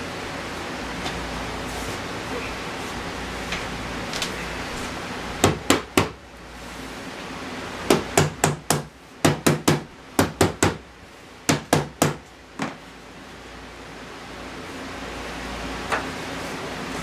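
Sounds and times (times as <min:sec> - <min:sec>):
rubber mallet striking wood: 0:07.9 - 0:10.8, 0:11.5 - 0:12.2.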